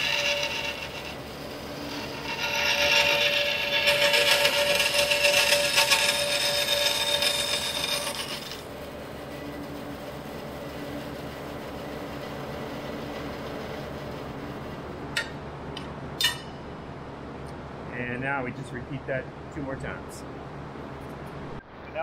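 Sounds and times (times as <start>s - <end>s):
bandsaw cutting metal: 0.0s - 9.8s.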